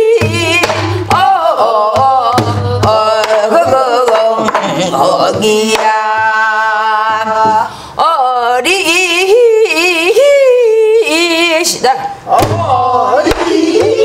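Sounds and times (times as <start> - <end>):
woman singing folk song: 0.0 - 14.0
barrel drum beaten with stick: 0.1 - 4.2, 12.4 - 14.0.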